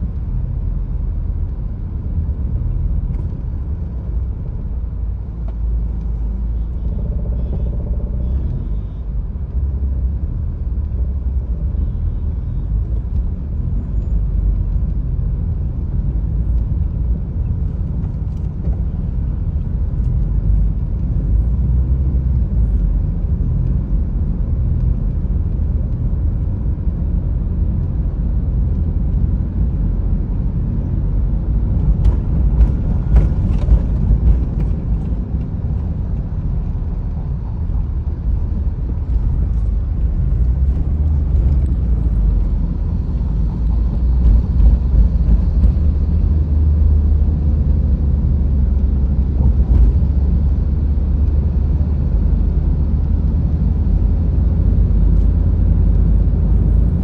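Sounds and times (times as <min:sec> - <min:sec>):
car engine and tyres rumbling: 0:00.0 - 0:57.0.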